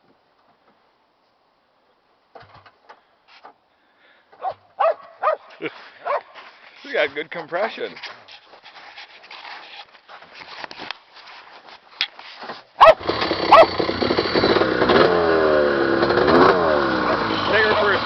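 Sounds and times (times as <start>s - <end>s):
dog barking: 4.4s - 6.3s, 12.8s - 13.8s
snowmobile engine revving: 12.8s - 18.0s.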